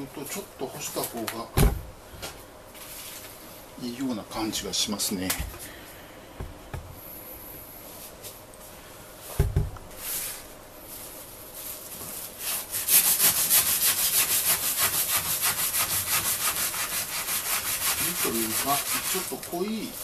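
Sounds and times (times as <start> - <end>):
knife sawing through lemongrass: 12.4 - 20.0.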